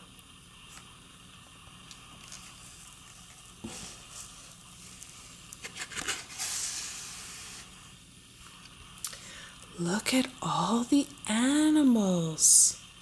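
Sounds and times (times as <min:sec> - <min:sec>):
book pages rustling: 0:02.1 - 0:07.7.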